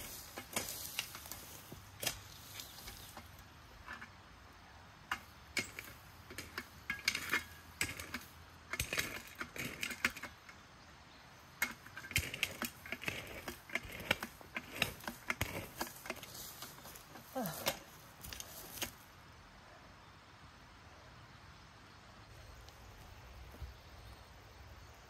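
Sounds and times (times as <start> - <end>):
footsteps on dry leaves: 0.0 - 3.4, 15.5 - 19.1.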